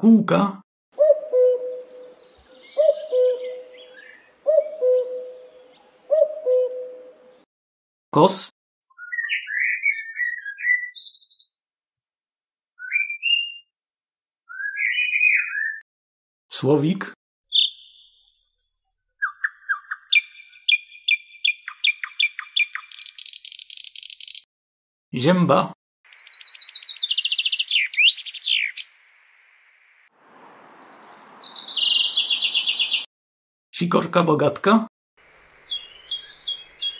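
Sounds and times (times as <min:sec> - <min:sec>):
blackbird singing: 0:01.0 - 0:07.4, 0:08.9 - 0:11.6, 0:12.8 - 0:13.7, 0:14.5 - 0:15.8, 0:17.5 - 0:24.4, 0:26.1 - 0:29.0, 0:30.7 - 0:33.1, 0:35.4 - 0:36.9.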